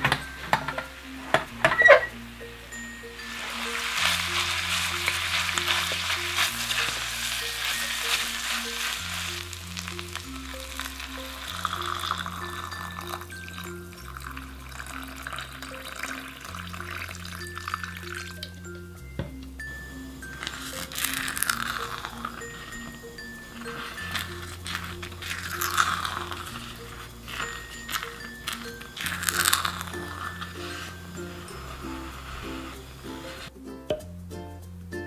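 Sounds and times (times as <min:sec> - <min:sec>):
light background music: 0:00.0 - 0:35.0
rice sizzling in a hot pot: 0:02.0 - 0:18.6, 0:19.9 - 0:33.5
water pouring: 0:03.2 - 0:18.6, 0:20.2 - 0:33.5.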